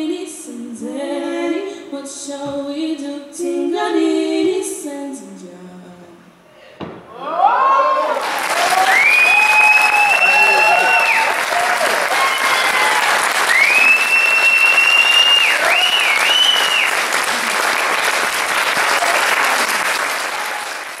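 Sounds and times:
audience clapping: 0:08.0 - 0:21.0
high whistle from audience: 0:08.8 - 0:11.4, 0:13.5 - 0:17.1.

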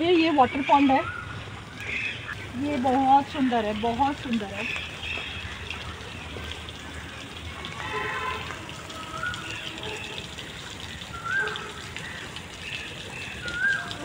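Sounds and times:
fountain splashing into water: 0:00.0 - 0:14.0.

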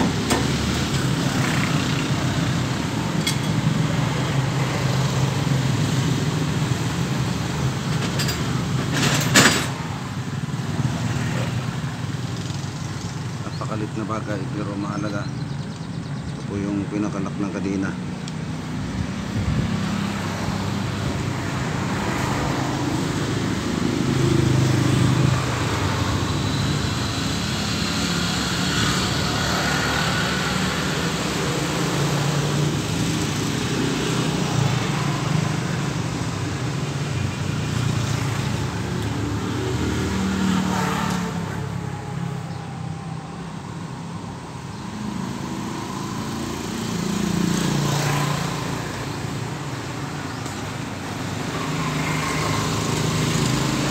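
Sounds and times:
traffic passing: 0:00.0 - 0:53.9.

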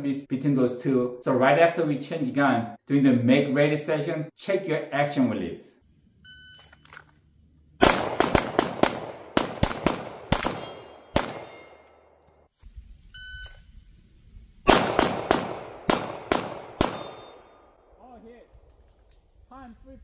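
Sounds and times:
rapid pistol shots: 0:07.8 - 0:11.6, 0:14.7 - 0:17.5.

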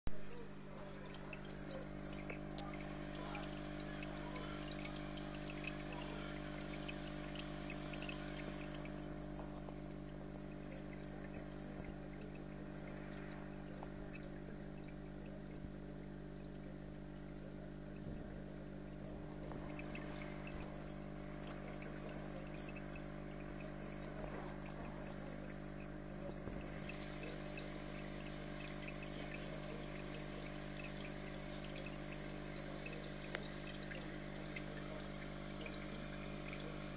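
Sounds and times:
aquarium filter motor hum: 0:00.2 - 0:36.9
water trickling and bubbling: 0:00.2 - 0:36.9.

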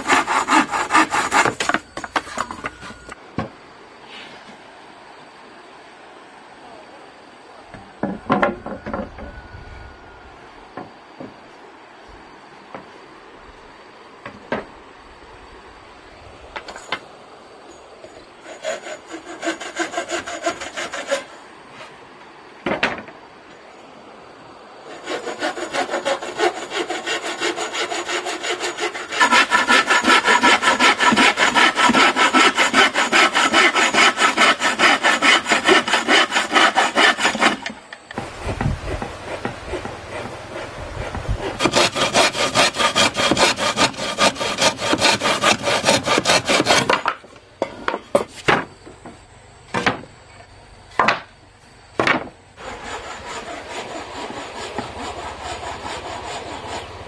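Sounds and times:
hand saw cutting wood: 0:00.0 - 0:02.8, 0:18.4 - 0:21.3, 0:24.9 - 0:47.2, 0:52.6 - 0:57.0.

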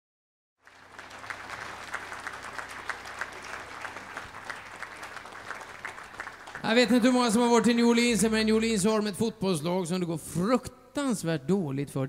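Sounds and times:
audience applauding: 0:00.6 - 0:08.4.

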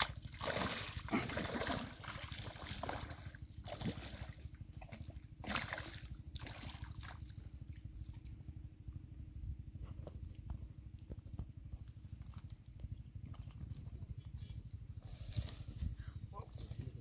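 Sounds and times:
fish splashing at water surface: 0:00.0 - 0:07.3.

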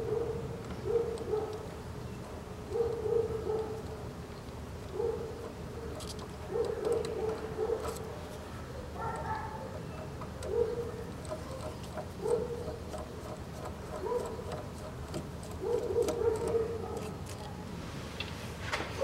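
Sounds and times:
screwdriver ratchet ticking: 0:11.1 - 0:16.6.

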